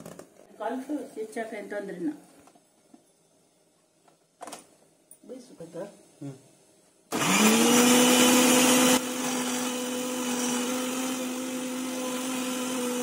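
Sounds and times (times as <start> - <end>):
mixer grinder motor humming: 7.1 - 13.0
blades grinding wet paste: 7.2 - 13.0.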